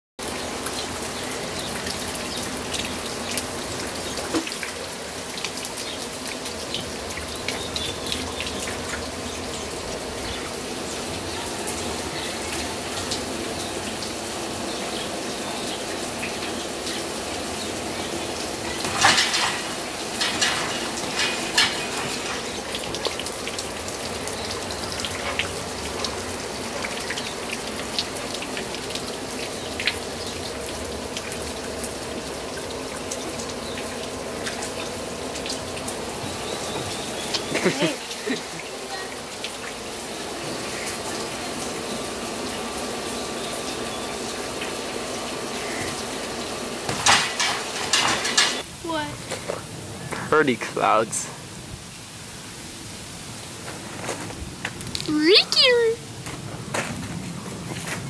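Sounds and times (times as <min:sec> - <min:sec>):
steady rain: 0:00.2 - 0:58.0
drips and clicks: 0:18.3 - 0:38.7.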